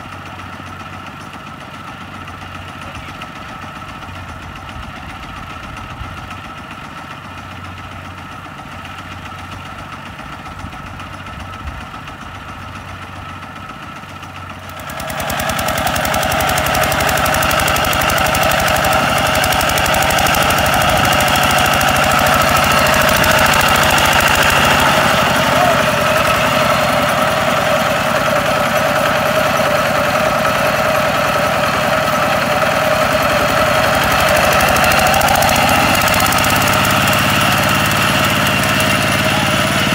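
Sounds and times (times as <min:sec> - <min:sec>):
tractor diesel engine: 0:00.0 - 0:39.9
wheels churning through mud: 0:12.6 - 0:39.9.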